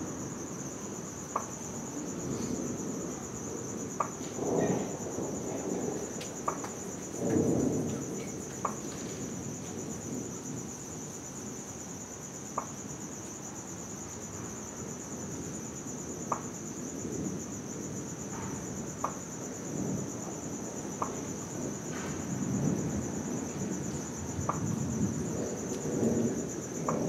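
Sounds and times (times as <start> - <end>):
distant thunder rumble: 0.0 - 11.1, 16.9 - 27.0
night insects chirring: 0.0 - 27.0.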